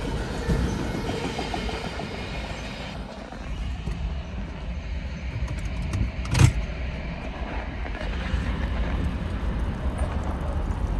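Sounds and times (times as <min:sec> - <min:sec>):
low vehicle rumble: 0:02.4 - 0:10.9.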